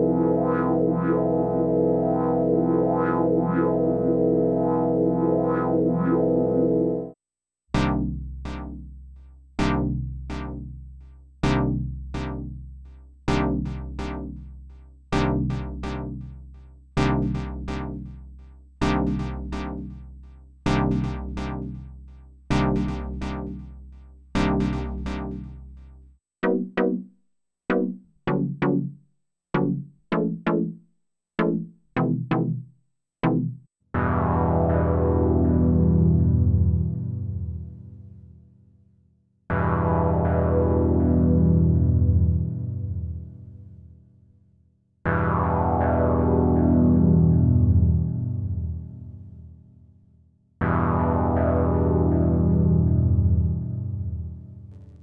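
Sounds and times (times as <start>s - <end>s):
synthesizer chord stabs: 0.0s - 7.2s, 24.4s - 25.6s, 34.0s - 37.6s, 39.5s - 43.2s, 45.1s - 48.9s, 50.6s - 55.0s.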